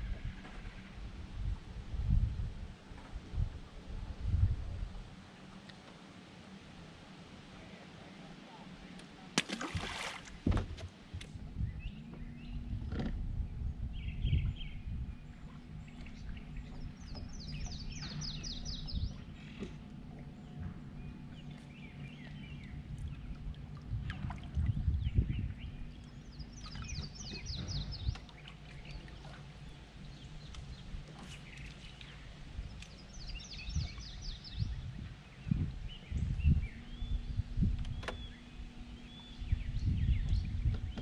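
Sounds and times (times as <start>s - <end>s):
trolling motor humming: 0.0s - 41.0s
bird chirps: 25.1s - 28.2s.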